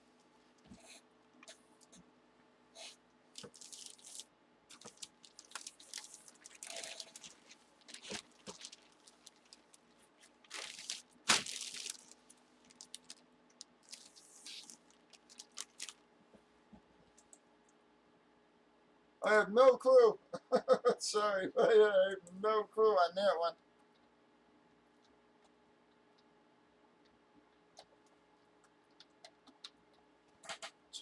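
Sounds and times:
plastic bag crinkling: 0:03.3 - 0:16.0.

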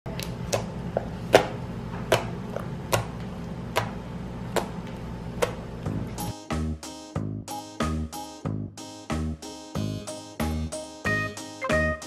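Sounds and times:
steady low hum: 0:00.1 - 0:06.3.

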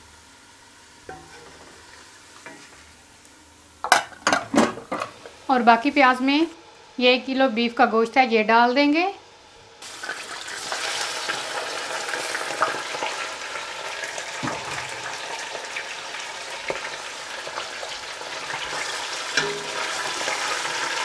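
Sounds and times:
meat sizzling in oil: 0:09.8 - 0:21.0.

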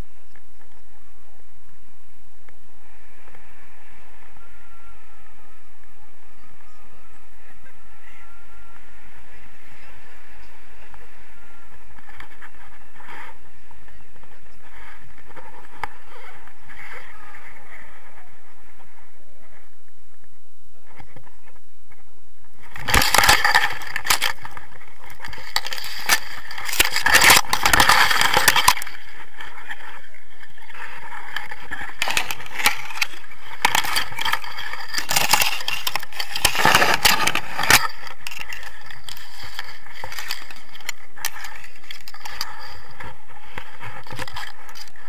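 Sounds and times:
grass brushing against camera: 0:09.7 - 0:45.0.

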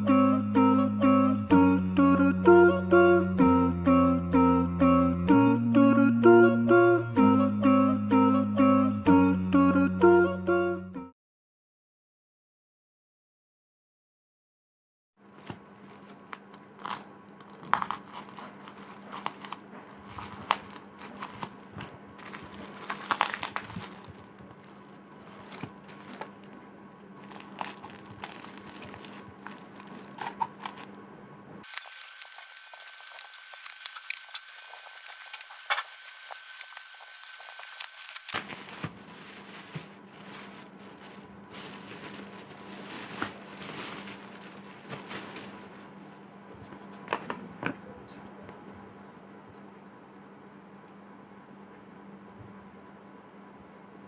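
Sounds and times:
bubble wrap crinkling and crackling: 0:15.2 - 0:31.0, 0:31.6 - 0:46.0
scissors cutting: 0:16.3 - 0:21.6, 0:31.6 - 0:38.5.

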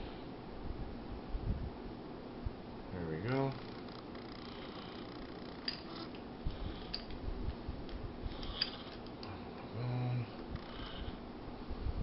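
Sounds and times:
metallic clicks of pistol parts: 0:05.6 - 0:06.2, 0:08.4 - 0:09.3.

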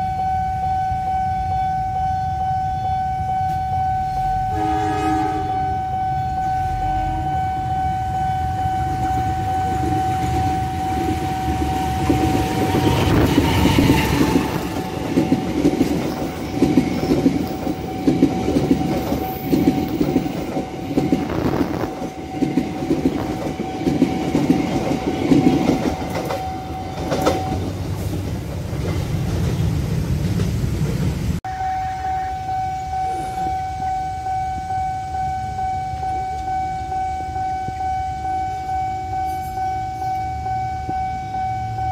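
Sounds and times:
crossing warning tone: 0:00.0 - 0:29.0, 0:31.5 - 0:41.9
train wheels clacking: 0:08.9 - 0:31.4.

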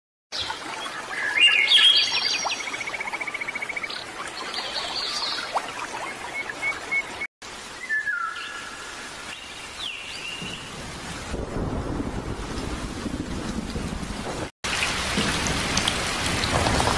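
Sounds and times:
birds singing and calling: 0:00.4 - 0:10.7.

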